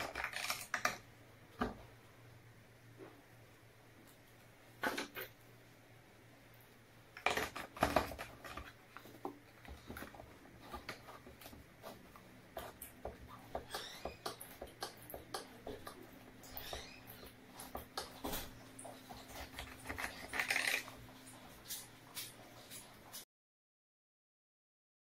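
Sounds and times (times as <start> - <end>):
plastic bottle scraping and rattling: 0.0 - 1.0, 7.2 - 12.9, 17.5 - 21.9
pump squeaking: 12.6 - 21.0.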